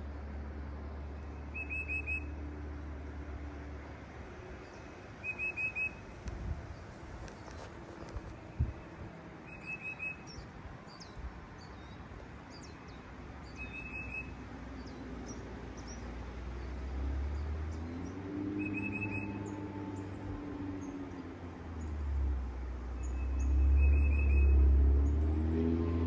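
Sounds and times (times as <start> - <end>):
songbird trilled call: 1.5 - 2.3, 5.2 - 6.0, 9.5 - 11.1, 13.4 - 16.0, 17.8 - 20.2, 23.0 - 24.6.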